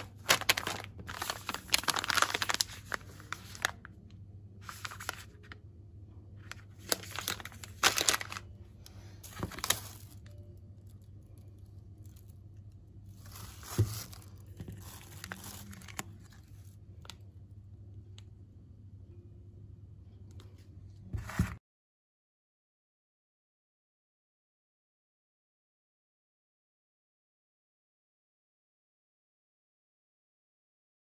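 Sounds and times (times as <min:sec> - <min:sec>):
food packaging crinkling: 0:00.0 - 0:03.9, 0:04.6 - 0:05.5, 0:06.6 - 0:08.6, 0:09.2 - 0:10.5, 0:13.1 - 0:16.8
faint low hum: 0:00.0 - 0:21.6.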